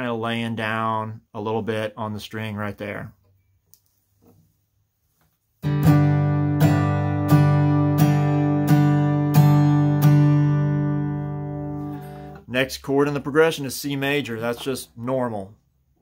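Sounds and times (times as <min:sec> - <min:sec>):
acoustic guitar strumming: 0:05.6 - 0:12.4.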